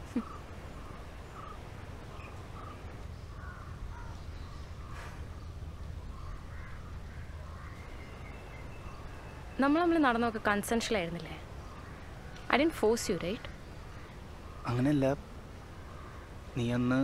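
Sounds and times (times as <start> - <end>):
low background rumble: 0.0 - 16.9
crows cawing: 0.2 - 4.2, 6.1 - 7.9, 13.1 - 14.8, 15.6 - 16.5.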